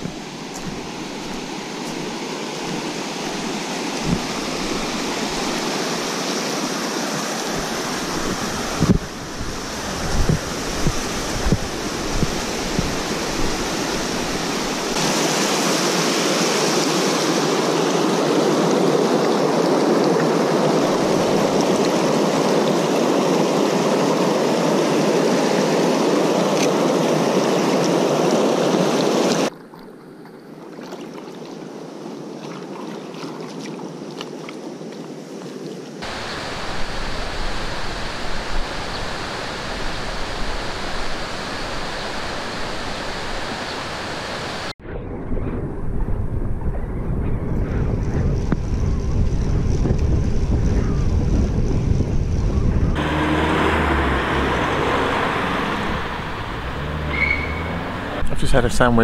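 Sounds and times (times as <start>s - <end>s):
stream rushing over rocks: 0.0s - 29.5s, 35.3s - 44.8s, 53.0s - 59.0s.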